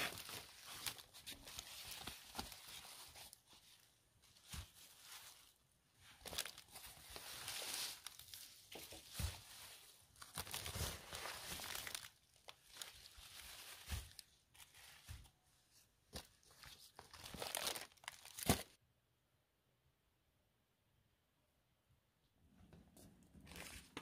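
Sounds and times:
plastic bags crinkling: 0:00.0 - 0:15.1, 0:16.2 - 0:18.8.

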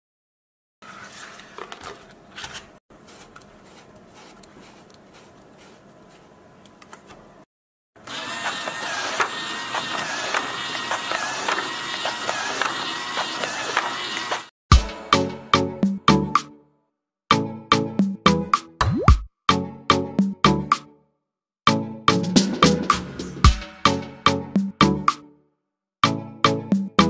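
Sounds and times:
handling cardboard and paper: 0:00.8 - 0:07.2
gear motors whining: 0:08.0 - 0:14.5.

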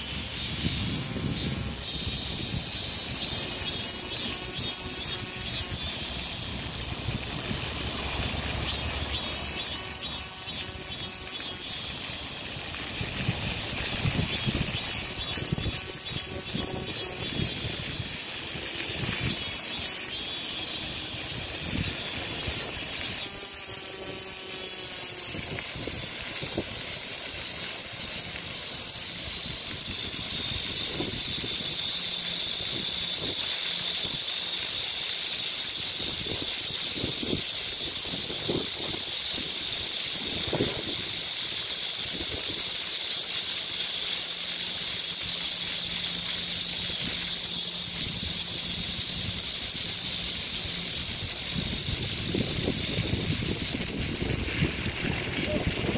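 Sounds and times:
cicadas buzzing: 0:00.0 - 0:55.9
fountain jets splashing: 0:00.0 - 0:55.9.

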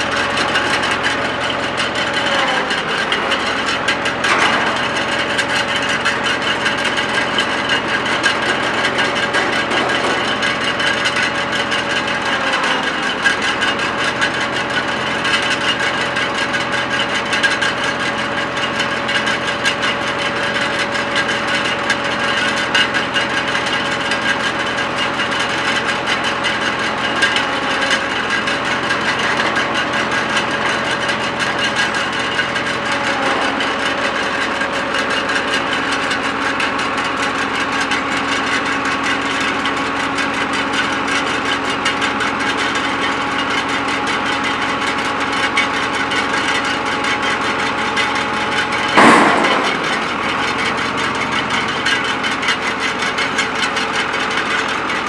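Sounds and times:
hydraulics lowering table: 0:00.0 - 0:13.5, 0:25.0 - 0:37.8, 0:46.4 - 0:54.8
tractor engine running: 0:00.0 - 0:55.0
loud clunk: 0:02.3 - 0:06.6, 0:48.1 - 0:52.0.

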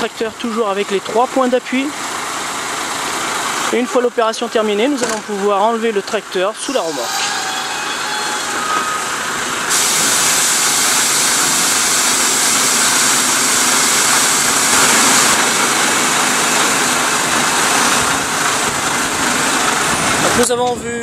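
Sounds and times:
truck engine running: 0:00.0 - 0:21.0
loud steady hiss: 0:07.6 - 0:20.3.

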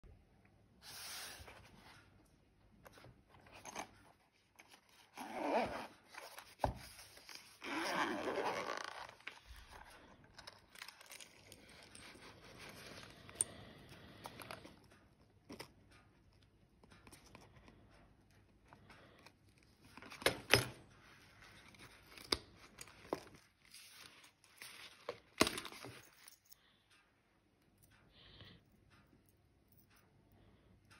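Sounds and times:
zipper pulled open: 0:04.9 - 0:06.4, 0:07.4 - 0:10.6
handling metal lures: 0:08.6 - 0:15.7, 0:21.3 - 0:26.6.

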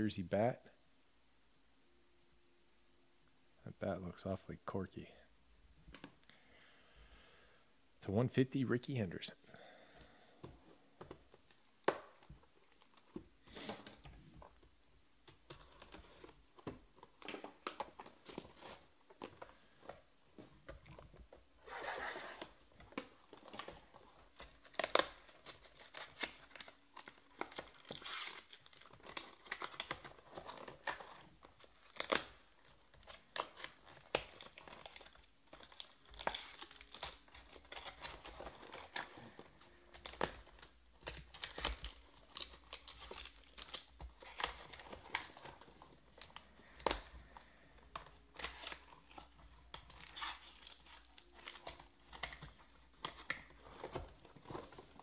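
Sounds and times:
cards clicking and rustling: 0:22.1 - 0:55.0
cardboard and foil tearing: 0:23.2 - 0:55.0.

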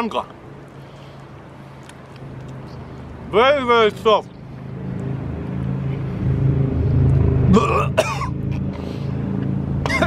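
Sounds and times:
low engine hum: 0:00.4 - 0:10.0
man gagging: 0:07.5 - 0:08.3.

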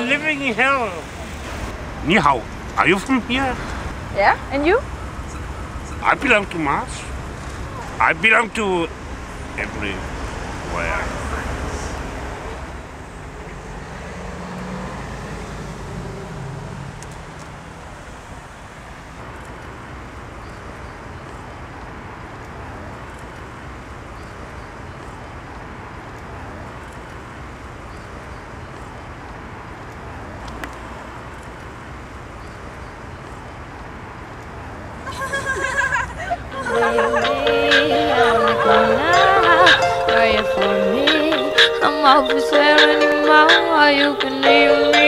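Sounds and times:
road traffic rumble: 0:00.0 - 0:45.0
faint voice: 0:07.7 - 0:08.9, 0:09.6 - 0:12.0.

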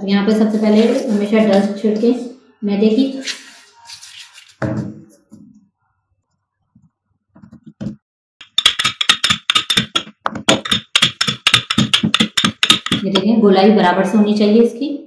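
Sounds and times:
rolling pin rolling dough: 0:06.7 - 0:13.2.

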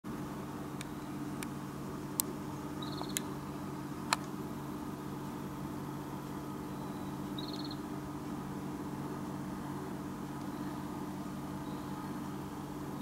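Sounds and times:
steady low hum: 0:00.1 - 0:13.0
sharp clicks: 0:02.2 - 0:03.3.

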